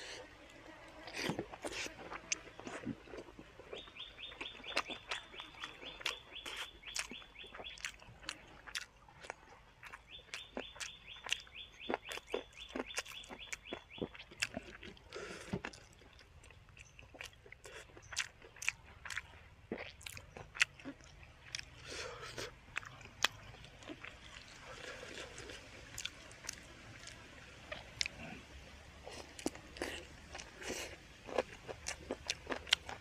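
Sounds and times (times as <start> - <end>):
chewing and crunching food: 0.0 - 33.0.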